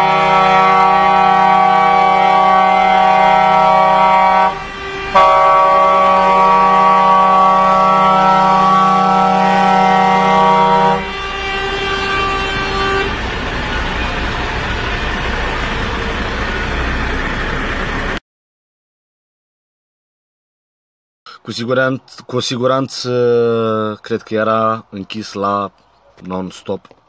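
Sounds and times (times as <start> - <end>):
truck air horns: 0.0 - 17.8
diesel engine running: 0.0 - 18.2.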